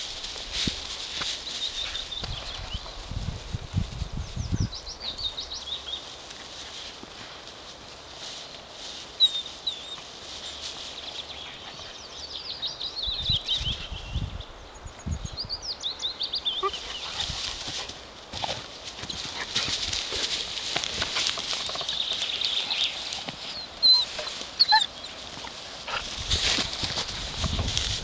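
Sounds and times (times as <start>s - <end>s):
rustling and thumps on grass: 0.0s - 11.8s, 17.0s - 28.0s
puppy whining: 23.5s - 25.1s
puppies squealing: 23.6s - 25.2s.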